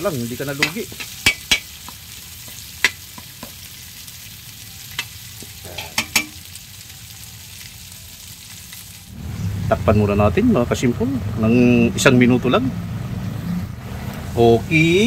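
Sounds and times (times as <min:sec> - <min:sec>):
food sizzling in oil: 0:00.0 - 0:09.6, 0:13.3 - 0:15.0
spatula scraping a wok: 0:05.0 - 0:06.4.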